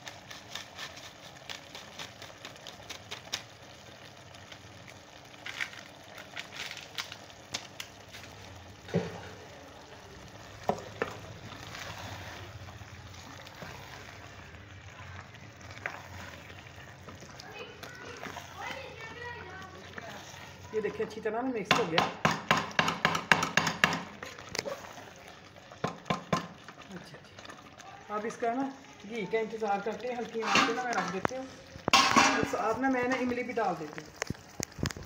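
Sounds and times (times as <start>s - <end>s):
masala sizzling in pan: 0.0s - 35.0s
spoon scraping a pan: 10.7s - 14.4s, 15.6s - 21.3s, 30.3s - 33.4s
knocks on pan: 21.7s - 24.1s, 25.8s - 26.6s, 31.9s - 32.5s.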